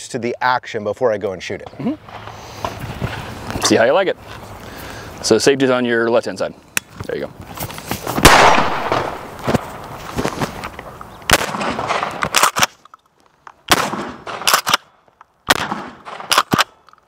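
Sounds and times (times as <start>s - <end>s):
shotgun shots: 8.2s - 9.8s, 11.3s - 12.8s, 13.7s - 14.9s, 15.5s - 16.8s.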